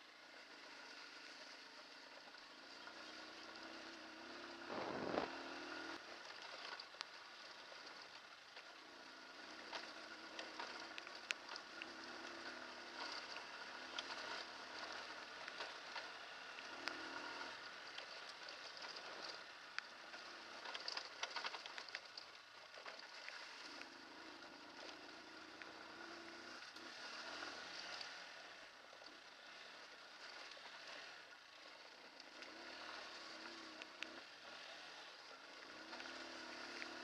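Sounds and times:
motorcycle engine: 0:00.0 - 0:37.0
steady rushing noise: 0:04.6 - 0:06.0
gravel clicks and rattles: 0:04.7 - 0:25.9.

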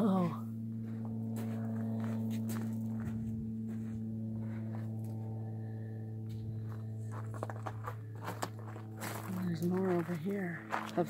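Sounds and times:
steady low hum: 0:00.0 - 0:11.0
footsteps on gravel: 0:00.8 - 0:05.4, 0:06.4 - 0:11.0.

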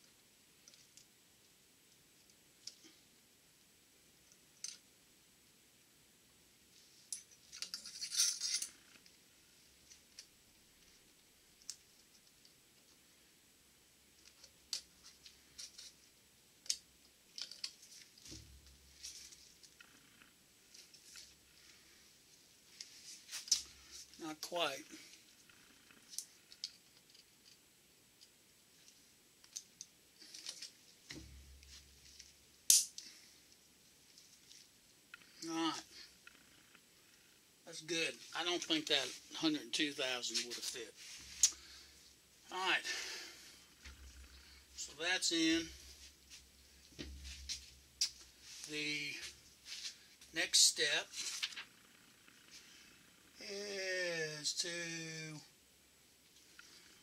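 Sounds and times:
metallic clicks of snap ring pliers: 0:32.7 - 0:33.1.

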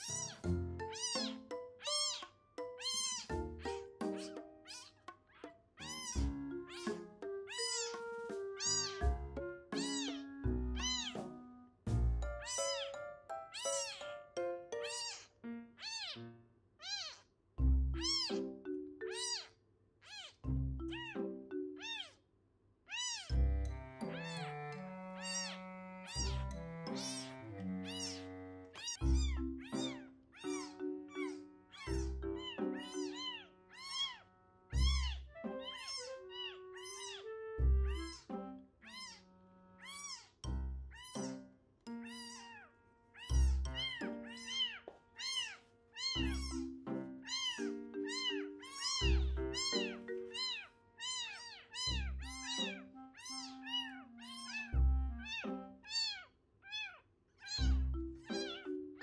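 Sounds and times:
kitten mewing: 0:00.0 - 0:08.0, 0:08.6 - 0:11.2, 0:12.4 - 0:14.2, 0:14.8 - 0:17.3, 0:18.0 - 0:21.2, 0:21.8 - 0:22.2, 0:22.9 - 0:23.4, 0:24.1 - 0:24.5, 0:25.2 - 0:27.3, 0:27.9 - 0:41.4, 0:42.0 - 0:58.7
soft music with deep beat: 0:05.9 - 0:12.9, 0:28.8 - 0:30.0.

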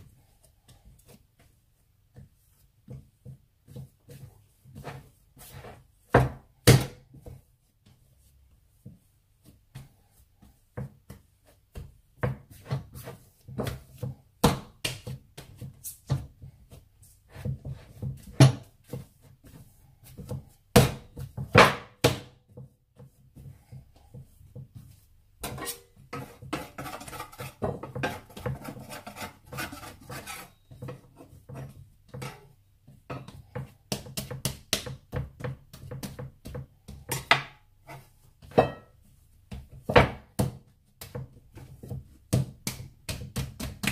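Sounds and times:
rubbing and scraping on board: 0:02.2 - 0:06.3, 0:22.6 - 0:32.6
dough thumping on wooden board: 0:06.1 - 0:08.0, 0:08.8 - 0:23.2, 0:33.0 - 0:37.6, 0:38.4 - 0:43.9.

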